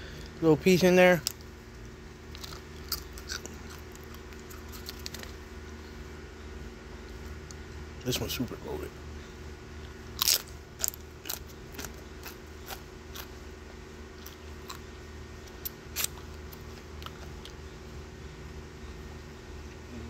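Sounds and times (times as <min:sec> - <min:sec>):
steady low hum: 0:00.0 - 0:20.0
crunchy chewing: 0:01.2 - 0:06.0, 0:09.8 - 0:17.9
chip crunching: 0:02.2 - 0:05.4, 0:09.8 - 0:13.4, 0:14.2 - 0:17.6.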